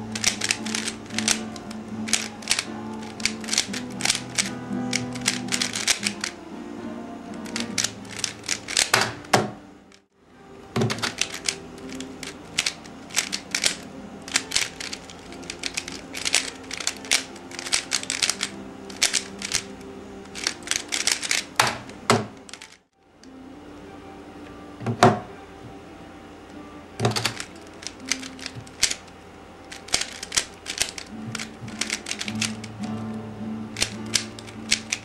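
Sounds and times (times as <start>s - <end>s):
plastic puzzle cube clicking: 0.0s - 6.4s, 7.3s - 9.5s, 10.8s - 22.8s, 27.0s - 29.1s, 29.7s - 33.0s, 33.7s - 35.0s
background music: 0.0s - 35.0s.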